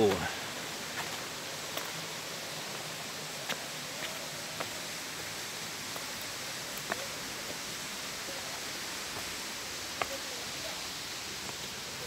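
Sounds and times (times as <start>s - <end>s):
waterfall rushing: 0.0s - 12.0s
footsteps on rocky trail: 0.9s - 2.0s, 3.4s - 4.8s, 6.8s - 7.6s, 9.1s - 10.3s.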